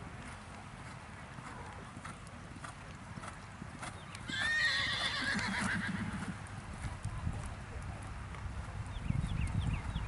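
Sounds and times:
hoofbeats on sand: 0.0 - 10.0
horse whinnying: 4.3 - 6.2.

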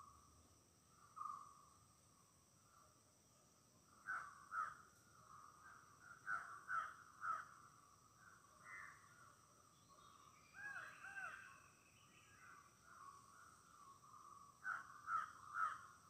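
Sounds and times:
wild birds calling: 4.0 - 7.7, 9.9 - 16.0.

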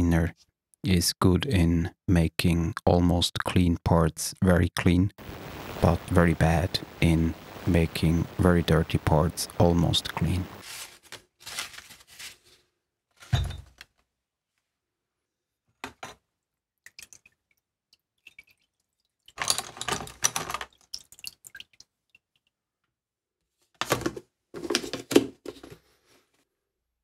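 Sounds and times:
solvent splashing and dripping: 16.8 - 22.6.

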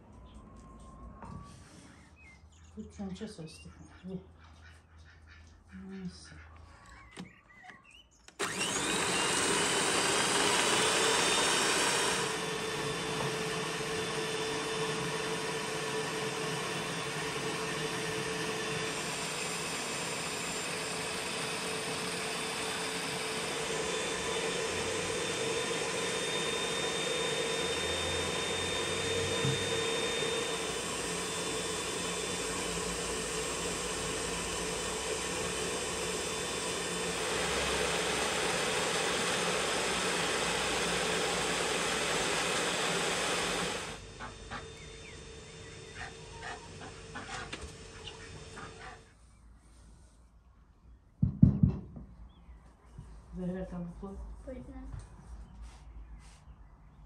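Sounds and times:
stand mixer motor whine: 8.3 - 49.0.

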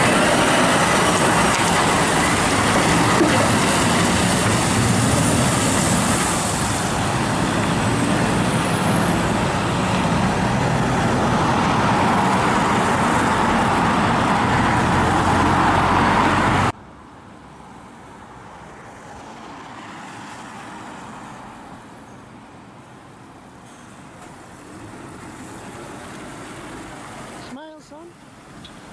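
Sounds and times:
lorry diesel engine driving off: 0.0 - 16.7
quiet road noise: 0.0 - 28.9.

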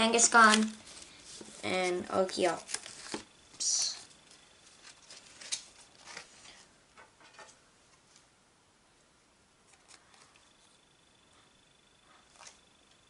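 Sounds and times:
trading cards being handled: 0.2 - 6.6.

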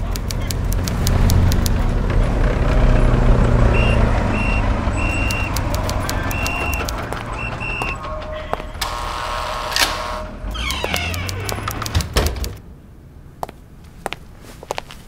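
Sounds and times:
sharp clicks: 0.0 - 1.9, 3.8 - 12.6
vehicle engines rumbling: 0.0 - 15.0
high-pitched beeps: 3.8 - 8.1.

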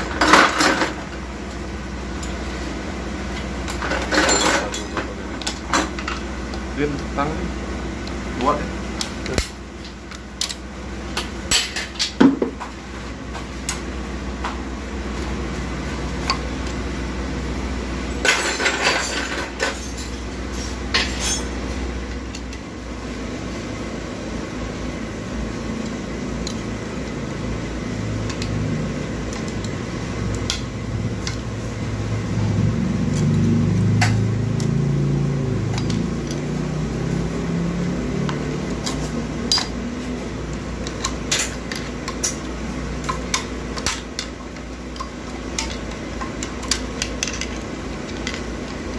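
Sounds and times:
steady low hum: 0.0 - 48.9
metal parts clinking and knocking: 3.8 - 6.2.

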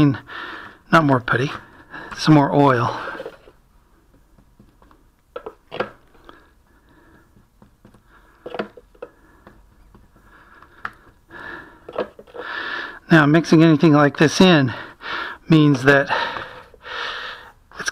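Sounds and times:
plastic bottle handled: 1.2 - 6.4, 7.1 - 12.5
stick tapping putty: 7.1 - 11.2.

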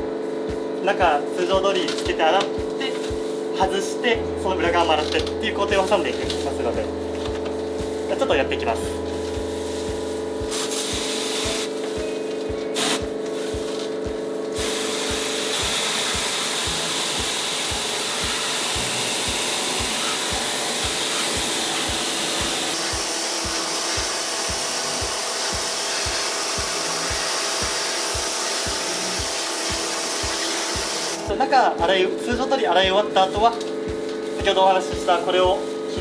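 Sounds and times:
water spray hissing: 9.3 - 12.2, 12.8 - 31.3.

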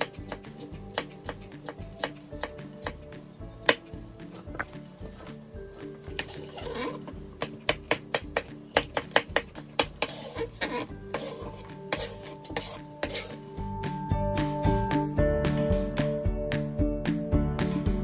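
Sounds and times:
knife chopping on wooden board: 0.0 - 5.3, 6.1 - 13.4.

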